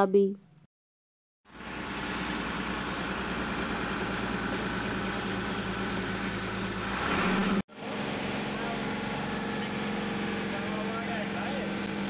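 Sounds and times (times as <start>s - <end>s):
truck engine running: 1.5s - 12.0s.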